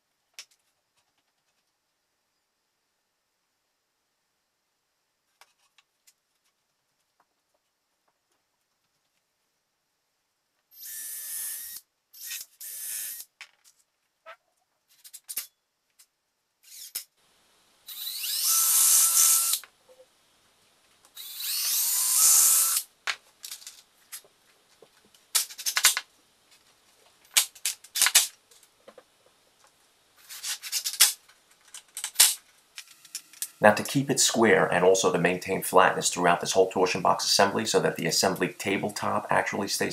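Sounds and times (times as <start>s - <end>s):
cordless drill driving screws: 10.8s - 13.3s, 16.6s - 17.0s, 17.9s - 19.6s, 21.2s - 22.9s.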